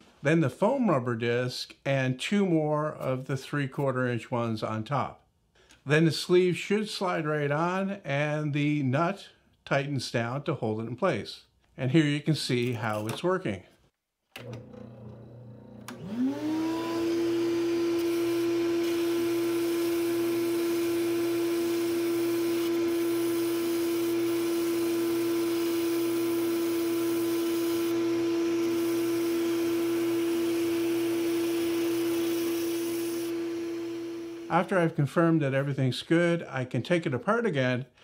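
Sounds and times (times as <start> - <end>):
spindle sander motor whining: 14.5 - 34.7
wood block being sanded: 18.0 - 34.6.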